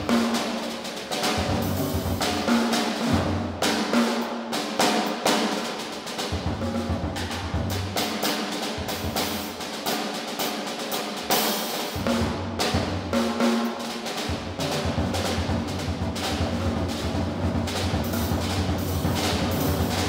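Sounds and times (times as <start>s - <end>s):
drum kit: 0.0s - 20.0s
snare and cymbal hits: 0.0s - 20.0s
upright bass: 14.5s - 20.0s.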